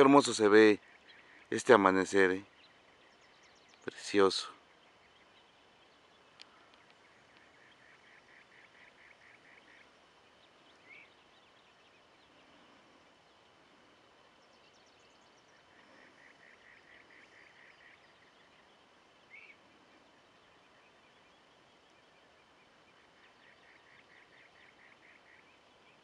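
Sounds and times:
birdsong repeated notes: 0.0s - 26.0s
low steady hiss: 0.0s - 26.0s
upswept bird chirps: 0.0s - 26.0s.

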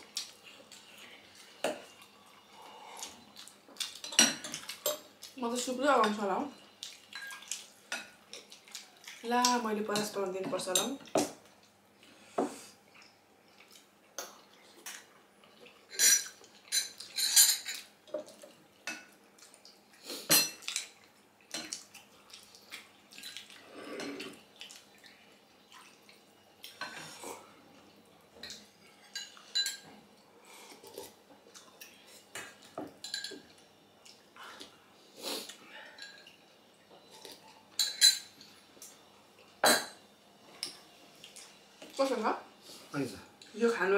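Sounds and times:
cutlery clinking on plates: 15.9s - 19.1s, 28.4s - 30.0s, 32.4s - 33.5s, 37.3s - 38.6s.

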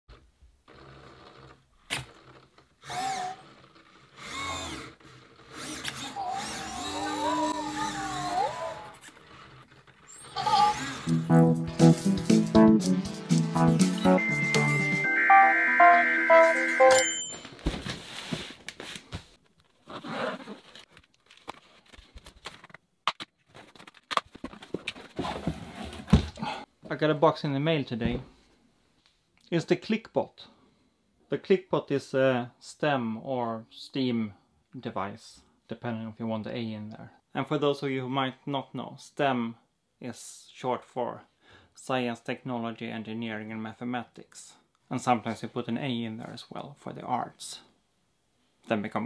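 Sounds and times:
robot motor whirring: 2.8s - 11.1s
electronic pitch sweeps: 13.4s - 17.0s
cardboard box scraping and rustling: 24.8s - 26.2s.

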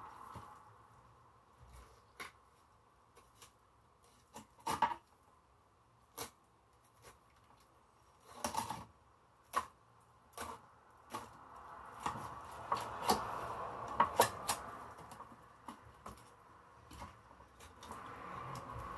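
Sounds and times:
knife scraping fish bones: 6.1s - 7.2s, 10.3s - 16.3s.

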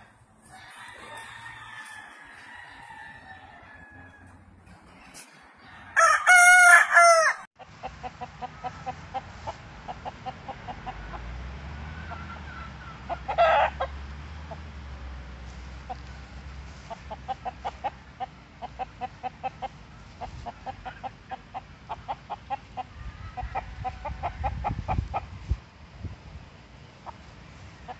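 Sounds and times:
rooster crowing: 0.0s - 4.5s, 5.6s - 7.5s
rooster clucking: 0.0s - 11.4s, 12.0s - 14.7s, 16.9s - 25.4s.

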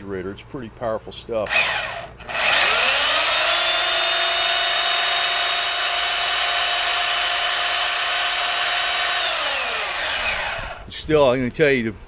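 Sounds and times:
electric chainsaw motor whine: 1.4s - 10.9s.

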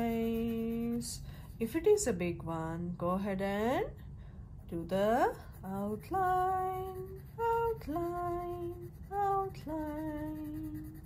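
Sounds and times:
woman singing slow tune: 4.7s - 11.0s.

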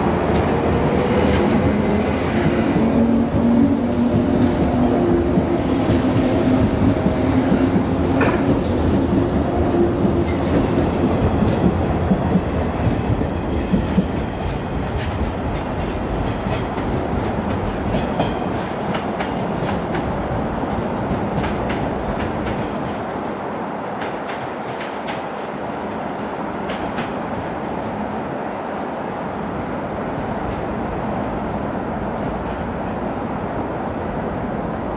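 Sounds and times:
train wheels clicking over rail joints: 2.4s - 28.0s.

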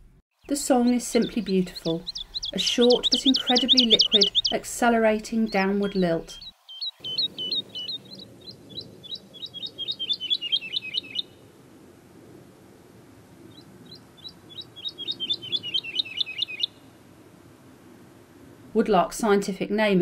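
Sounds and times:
woodlark singing: 0.4s - 11.3s, 13.9s - 16.8s.

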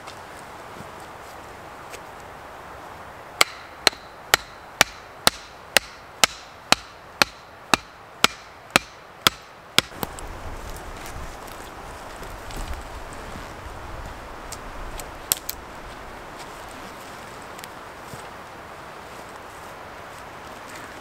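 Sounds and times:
hatchet knocking wooden stake: 3.4s - 10.1s.

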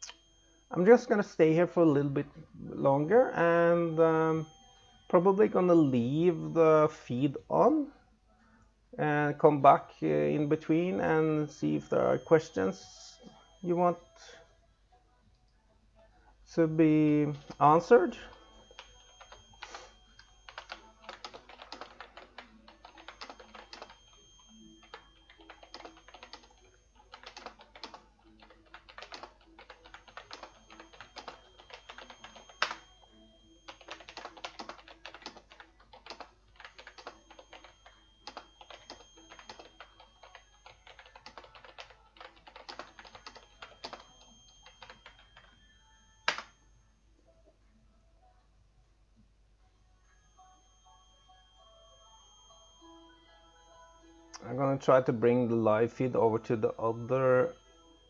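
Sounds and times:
typing on a keyboard: 18.6s - 33.0s, 33.7s - 45.6s.

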